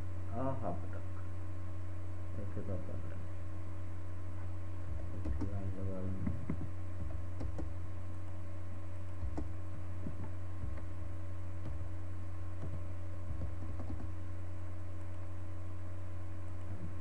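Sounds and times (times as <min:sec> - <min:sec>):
low electrical hum: 0:00.0 - 0:17.0
keyboard clicks: 0:05.1 - 0:05.6, 0:07.4 - 0:07.7, 0:12.6 - 0:14.1
computer mouse clicks: 0:05.2 - 0:05.6, 0:07.4 - 0:07.7, 0:13.4 - 0:14.1.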